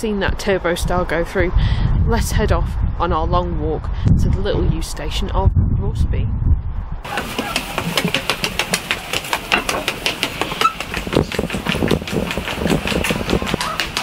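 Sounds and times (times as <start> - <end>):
footsteps on stairs: 7.1 - 14.0.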